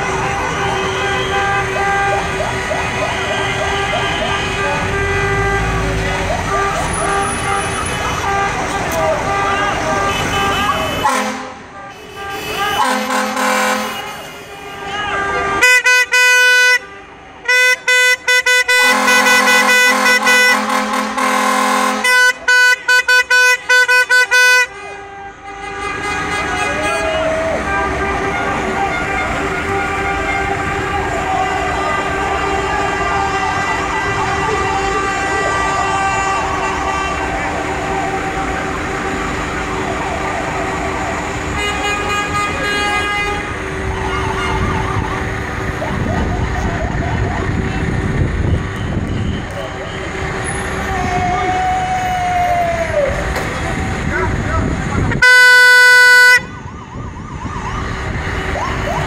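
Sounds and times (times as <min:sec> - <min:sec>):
vehicle horn honking: 0:00.0 - 0:02.4, 0:03.1 - 0:37.4, 0:41.6 - 0:43.5, 0:55.2 - 0:56.5
fire engine siren warbling: 0:00.0 - 0:24.7, 0:25.3 - 0:59.0
street traffic: 0:00.0 - 0:59.0.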